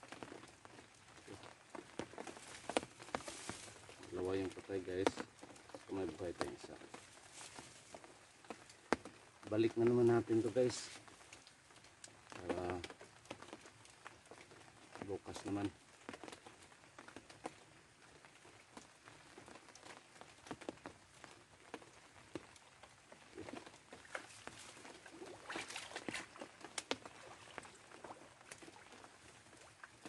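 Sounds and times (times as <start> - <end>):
plastic raincoat crackling: 0.0 - 30.0
rustling of wet grass: 0.0 - 30.0.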